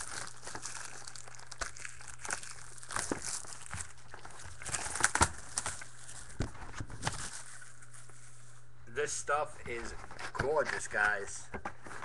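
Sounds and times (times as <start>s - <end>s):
plastic wrapping crinkling and tearing: 0.0s - 8.7s.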